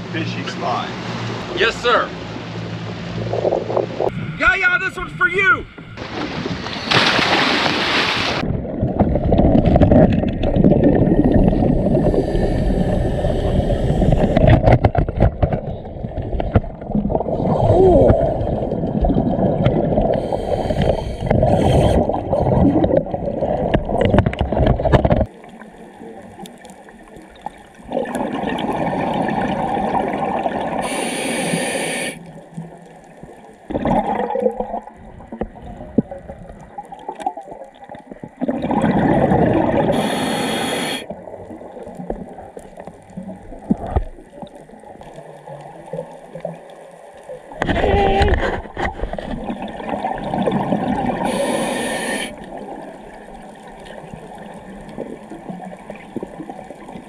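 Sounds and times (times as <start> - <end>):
bubbling underwater exhalations: 16.8 - 24.6, 38.4 - 41.0
short high hiss: 30.8 - 32.2, 40.0 - 41.0, 51.3 - 52.3.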